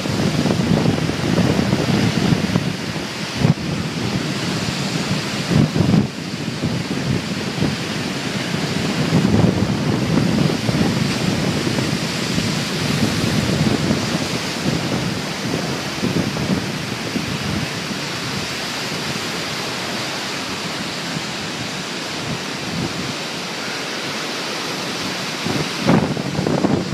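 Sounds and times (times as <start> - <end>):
waves breaking on beach: 0.0 - 26.9
wind buffeting microphone: 0.0 - 26.9.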